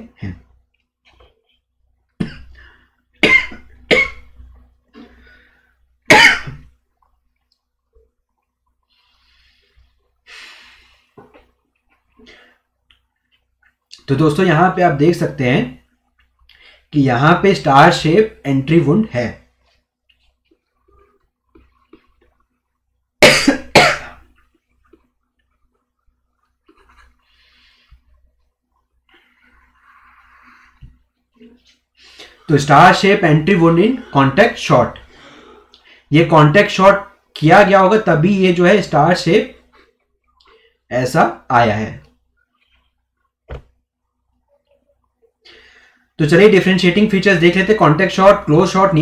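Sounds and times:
man coughing: 0:03.2 - 0:04.3, 0:06.1 - 0:06.7, 0:23.2 - 0:24.3.

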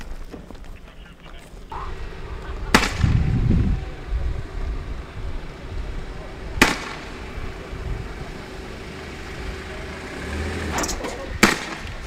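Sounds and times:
low steady rumble: 0:01.6 - 0:12.0
sharp bang with ringing tail: 0:06.6 - 0:07.2.

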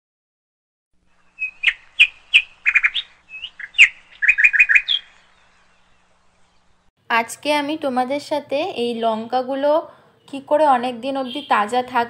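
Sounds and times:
bird chirping: 0:01.0 - 0:06.9.

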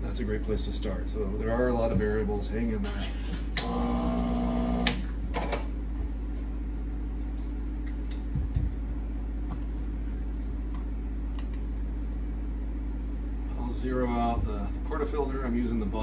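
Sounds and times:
espresso machine pump buzzing: 0:03.6 - 0:05.2.

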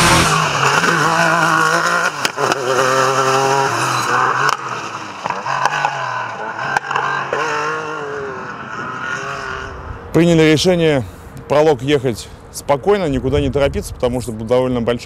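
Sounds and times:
engine revving: 0:00.0 - 0:10.1.

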